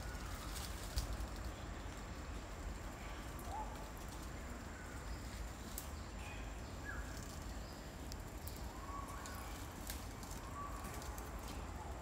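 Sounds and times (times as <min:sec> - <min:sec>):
faint bird chirps: 0:04.7 - 0:11.9.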